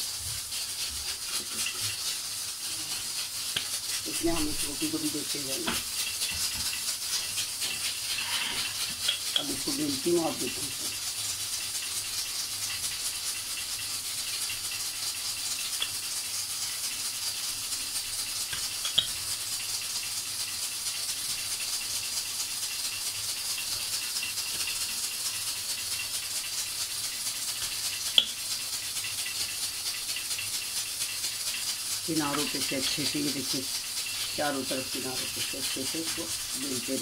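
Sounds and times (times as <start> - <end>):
constant hiss: 0.0 - 37.0
rolling pin rolling dough: 2.6 - 11.1, 32.0 - 37.0.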